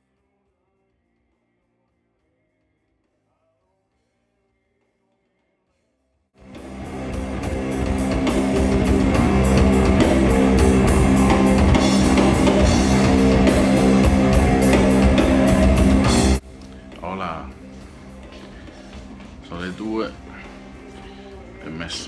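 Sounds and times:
rock music with drums and guitar: 6.4s - 22.0s.

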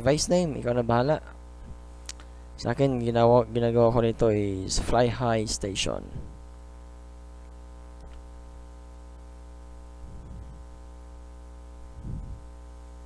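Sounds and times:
electrical mains hum: 0.0s - 13.0s
faint click: 2.0s - 2.3s.

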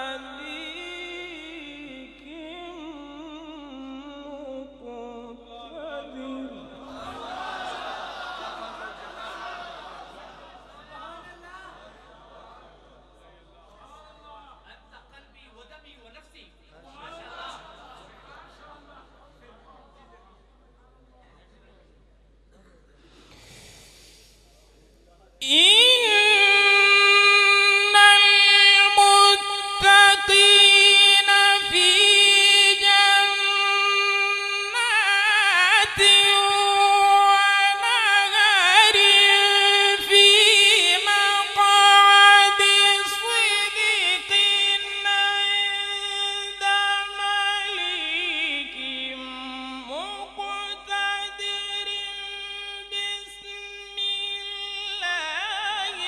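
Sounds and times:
man reciting melodically: 0.0s - 7.8s, 25.3s - 56.0s.

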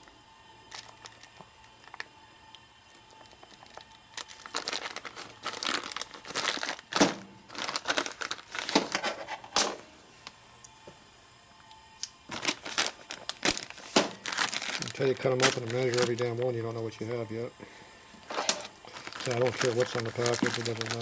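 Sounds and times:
plastic packaging crinkling and tearing: 0.6s - 9.4s, 12.3s - 17.0s, 18.2s - 21.0s.

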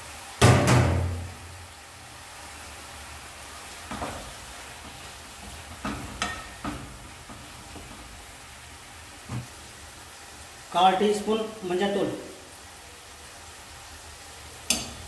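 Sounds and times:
bones sizzling in oil: 0.0s - 15.0s
spoon knocking against pot: 14.7s - 15.0s.

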